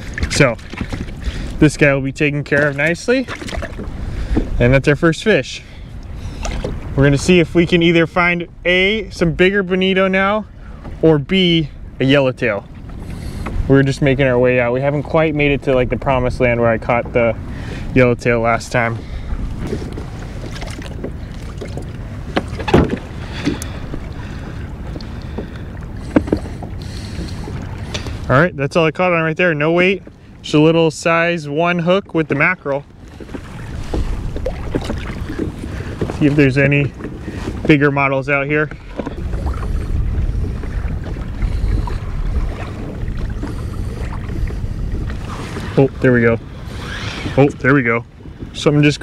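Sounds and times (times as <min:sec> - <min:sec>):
wind rumbling on microphone: 0:00.0 - 0:30.7, 0:32.0 - 0:49.0
water sloshing against hull: 0:00.0 - 0:49.0
wind buffeting microphone: 0:32.0 - 0:49.0.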